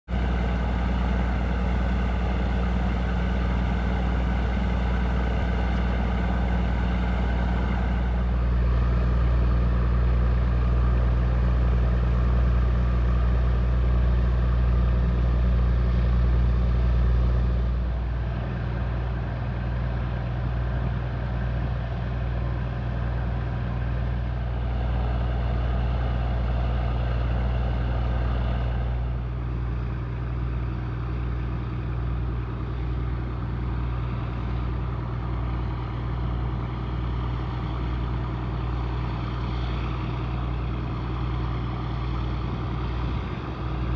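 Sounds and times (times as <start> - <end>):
ship machinery humming: 0.1 - 11.2, 22.6 - 43.9.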